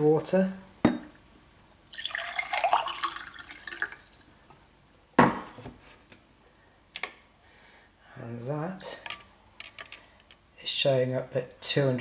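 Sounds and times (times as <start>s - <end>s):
water pouring into a glass: 1.8s - 4.8s.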